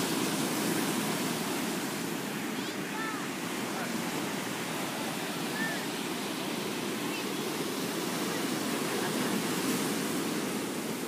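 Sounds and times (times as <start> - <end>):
ocean surf breaking on shore: 0.0 - 11.0.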